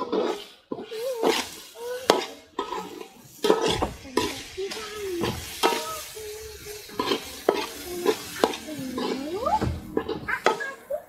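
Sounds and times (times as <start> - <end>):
metal spoon scraping a pan: 0.0 - 10.9
food sizzling in oil: 0.0 - 11.0
spoon knocking on pan: 2.1 - 6.0, 6.9 - 10.6.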